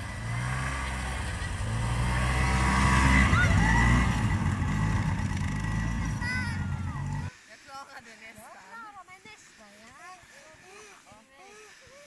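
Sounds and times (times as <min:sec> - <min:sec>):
snowmobile engine passing: 0:00.0 - 0:07.3.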